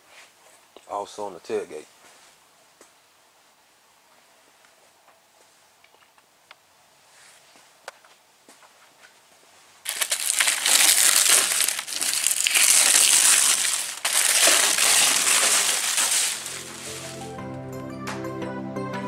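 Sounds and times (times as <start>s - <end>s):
paper crumpling: 9.8s - 17.3s
paper and tape tearing: 9.9s - 17.3s
background music: 16.4s - 19.0s.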